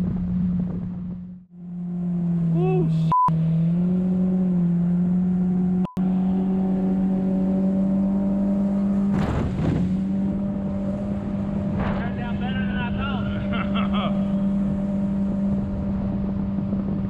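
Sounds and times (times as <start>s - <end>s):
boat engine at high throttle: 0.0s - 17.0s
water splashing against hull: 9.0s - 10.2s.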